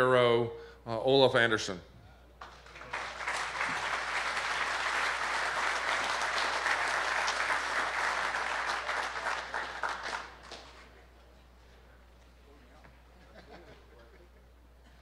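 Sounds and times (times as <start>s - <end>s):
audience applauding: 2.4s - 10.9s.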